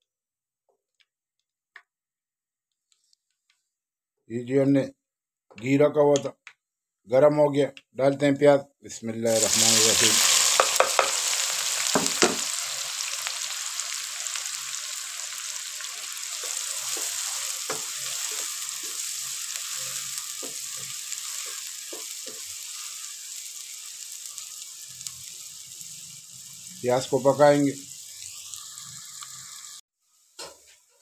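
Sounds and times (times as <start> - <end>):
onions sizzling: 9.3 - 31.0.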